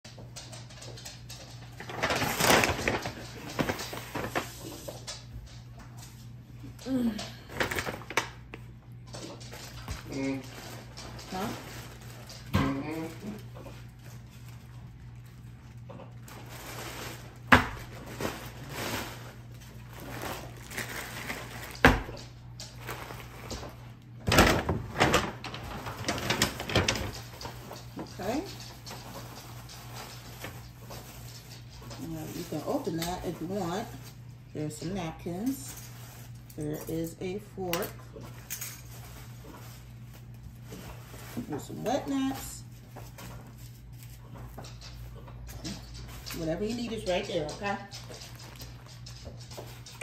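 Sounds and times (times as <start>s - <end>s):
low steady hum: 0.1s - 50.0s
paper bag rustling: 1.6s - 5.0s, 9.8s - 22.1s, 22.7s - 34.2s, 35.4s - 36.9s, 38.2s - 44.6s.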